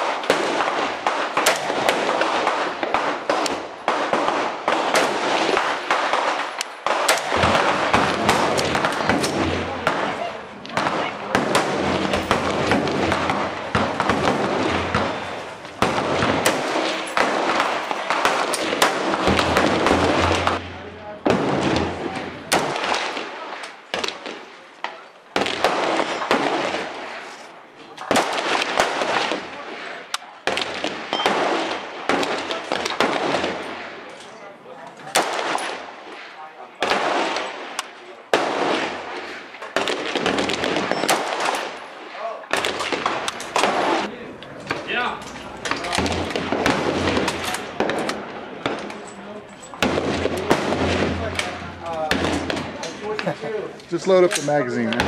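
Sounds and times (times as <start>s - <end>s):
fainter sharp gunshot cracks: 0.0s - 10.1s
rifle gunshots with echo: 0.0s - 34.2s, 35.0s - 53.2s.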